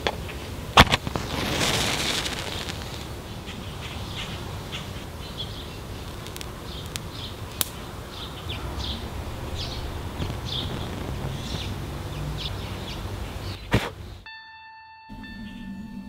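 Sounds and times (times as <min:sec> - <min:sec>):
match flaring with a hiss: 0:00.8 - 0:03.4, 0:06.0 - 0:07.8, 0:09.0 - 0:12.4
match burning faint ticks: 0:05.9 - 0:07.8, 0:09.6 - 0:11.8.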